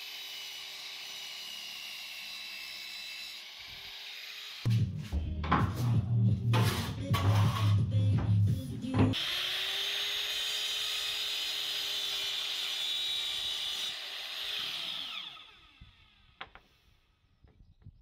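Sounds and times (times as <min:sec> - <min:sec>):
mitre saw whining: 0:00.0 - 0:04.7, 0:09.1 - 0:17.1
saw blade winding down: 0:00.0 - 0:04.7, 0:09.2 - 0:16.4
background music: 0:04.7 - 0:09.2.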